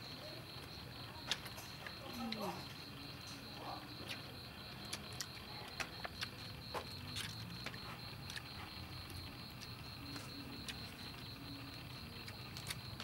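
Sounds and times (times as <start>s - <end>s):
high pulsing insect trill: 0.0s - 13.0s
people chewing: 0.2s - 13.0s.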